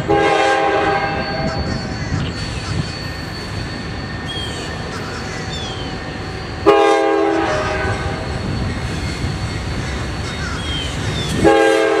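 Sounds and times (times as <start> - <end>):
locomotive air horn blast: 0.0 - 1.5, 6.6 - 8.2, 11.4 - 12.0.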